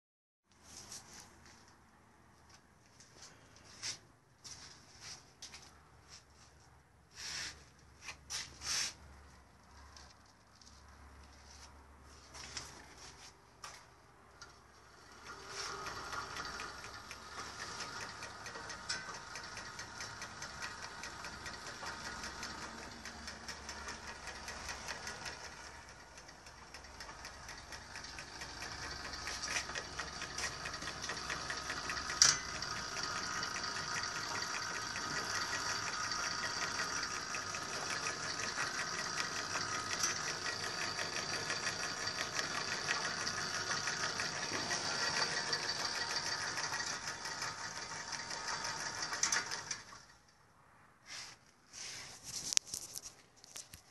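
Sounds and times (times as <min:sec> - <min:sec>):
gearbox mechanical clatter: 0:14.8 - 0:50.2.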